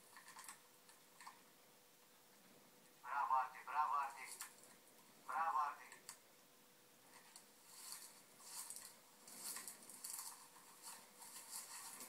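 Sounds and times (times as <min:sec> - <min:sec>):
scratchy rustling: 0:07.1 - 0:12.0.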